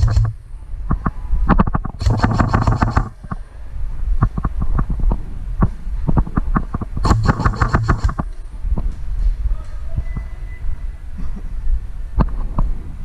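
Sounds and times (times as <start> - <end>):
airsoft gun full-auto burst: 0.0 - 0.4, 2.0 - 3.1, 7.0 - 8.2
single airsoft shots: 2.0 - 3.1, 7.0 - 8.3.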